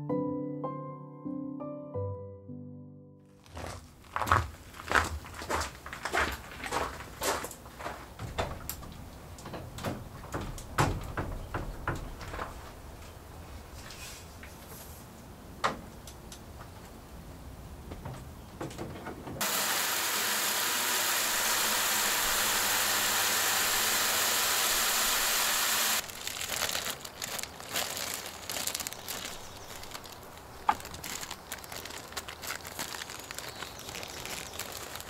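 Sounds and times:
hose spraying water into bucket: 19.4s - 26.0s
plastic bag crinkling: 26.0s - 35.0s.

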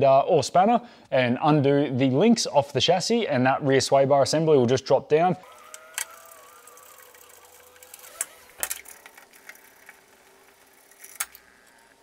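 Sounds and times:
socket and spanner clicking: 5.4s - 12.0s.

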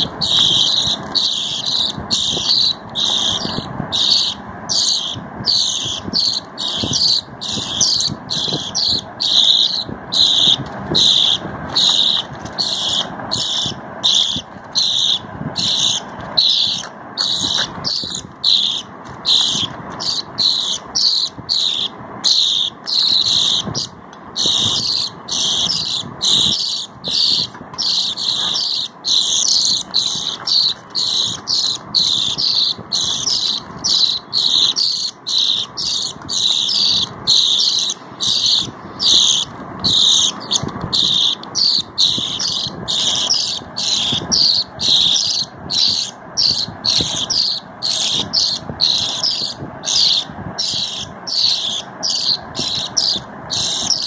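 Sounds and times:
budgerigar chicks chirping: 0.0s - 54.0s.

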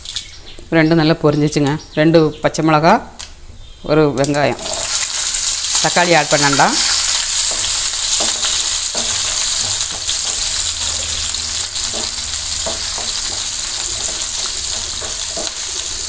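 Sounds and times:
onions sizzling in hot oil: 4.5s - 16.0s.

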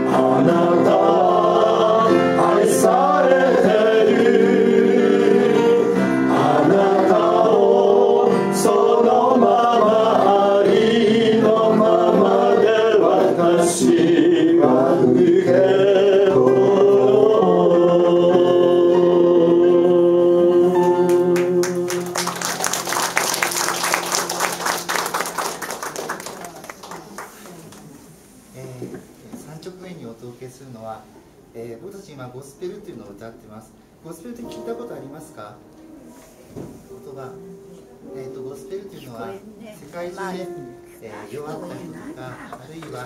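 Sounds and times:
gospel choir singing: 0.0s - 25.2s
instrumental accompaniment: 16.4s - 26.0s
applause: 21.1s - 27.8s.

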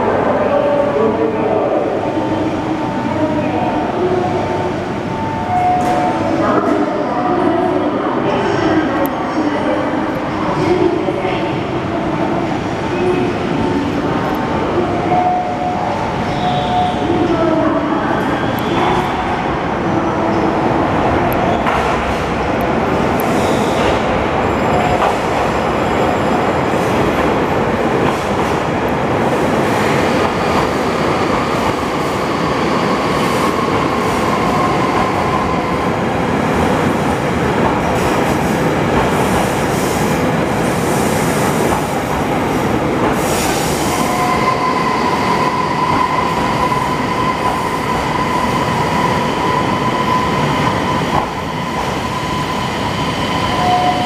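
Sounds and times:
train wheels rumbling on rail: 5.7s - 54.0s.

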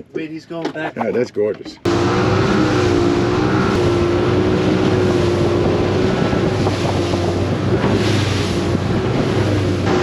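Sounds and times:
water rushing from hull: 1.7s - 10.0s
motorboat engine running: 1.8s - 10.0s
wind buffeting microphone: 2.5s - 10.0s.

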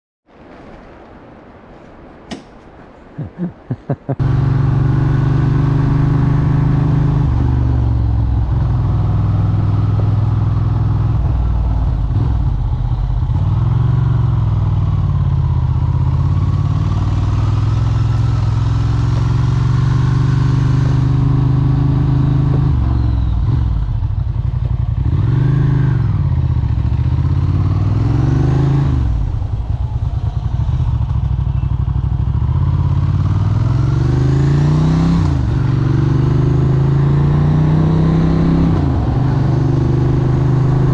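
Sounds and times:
moped engine revving: 13.4s - 40.9s.

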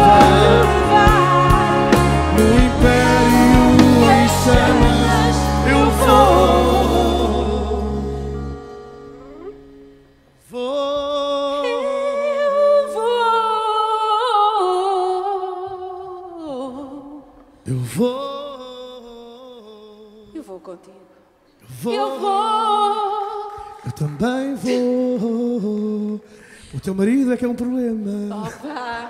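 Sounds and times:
person singing unaccompanied: 0.0s - 8.2s, 10.5s - 17.3s
pop-rock band final chord: 0.0s - 9.1s.

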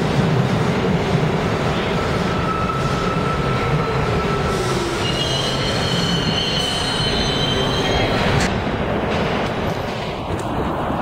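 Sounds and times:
train rumbling over rails: 0.0s - 11.0s
high-pitched brake squeal: 2.4s - 8.4s.

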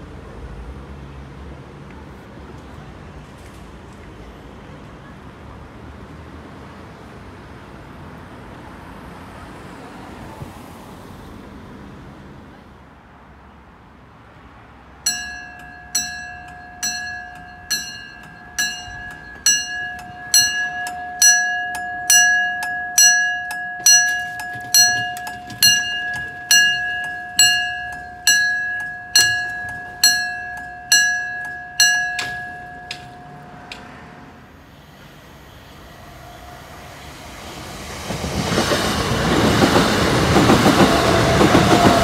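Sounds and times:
level crossing bell ringing: 15.1s - 34.0s.

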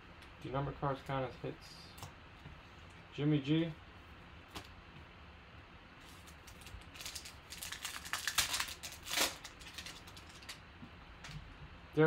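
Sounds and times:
foil wrapper crinkling and tearing: 6.0s - 10.6s.

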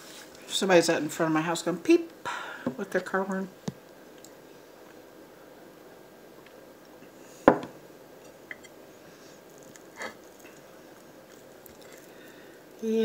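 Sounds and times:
faint room hiss: 0.0s - 13.0s
glass set down on table: 7.5s - 7.8s.

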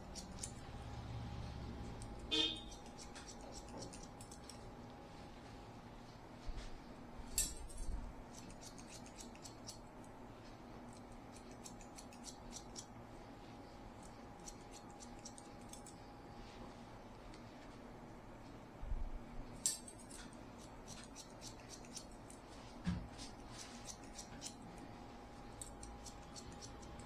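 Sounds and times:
scissors snipping hair: 0.0s - 0.9s, 1.8s - 4.7s, 7.3s - 10.2s, 10.9s - 12.9s, 14.0s - 16.0s, 19.6s - 27.0s
faint steady hum: 0.0s - 27.0s.

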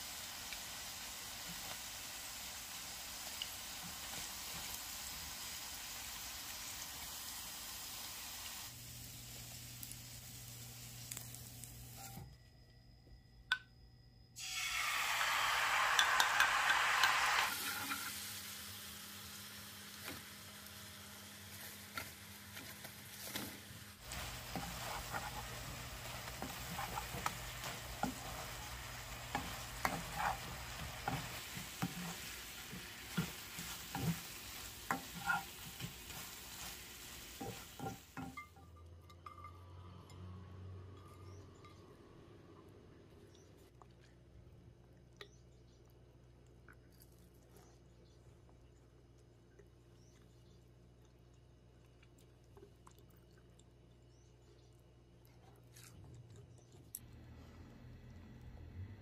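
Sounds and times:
sauce sizzling in frying pan: 0.0s - 12.1s, 14.4s - 23.3s, 23.9s - 38.4s
spatula scraping pan: 21.5s - 38.3s.

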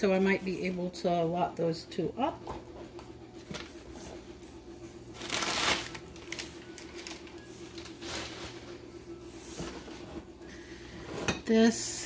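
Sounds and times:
packing paper rustling and crinkling: 3.4s - 4.2s, 4.9s - 10.0s.

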